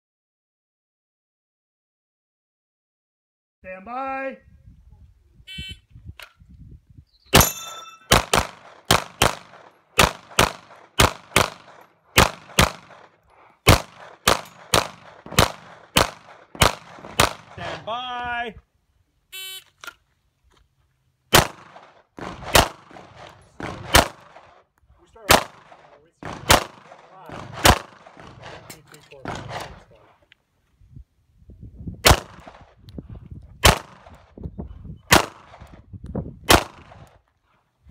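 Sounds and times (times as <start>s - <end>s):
wind rumble: 4.4s - 7.2s, 30.8s - 37.2s
brief metallic ring: 7.4s - 8.1s
handgun shot: 7.4s - 17.6s, 21.3s - 24.4s, 25.2s - 29.8s, 35.1s - 35.6s, 36.5s - 37.0s
rapid pistol fire: 8.1s - 17.7s, 21.3s - 24.5s, 25.2s - 29.8s, 32.0s - 32.7s, 33.6s - 34.2s, 35.1s - 35.6s, 36.5s - 37.0s.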